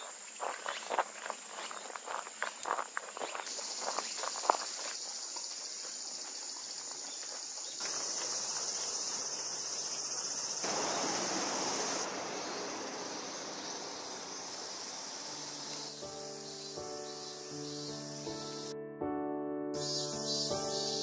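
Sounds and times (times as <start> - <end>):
cicadas droning: 0.0 - 18.7, 19.8 - 21.0.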